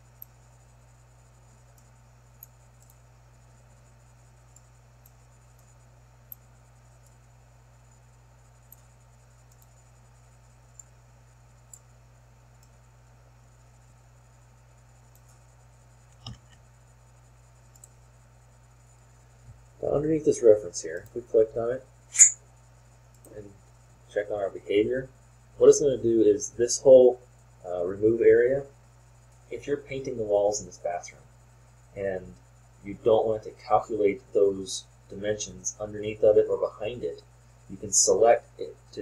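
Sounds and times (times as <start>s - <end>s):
computer mouse clicks: 1.5s - 3.0s, 4.5s - 7.2s, 8.6s - 9.8s, 10.7s - 10.9s, 11.6s - 11.9s, 15.1s - 15.5s, 16.1s - 16.7s, 17.6s - 18.0s.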